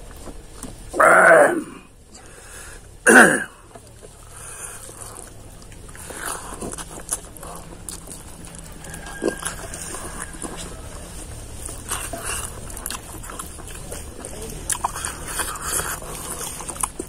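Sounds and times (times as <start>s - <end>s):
chewing with mouth clicks: 3.5s - 17.0s.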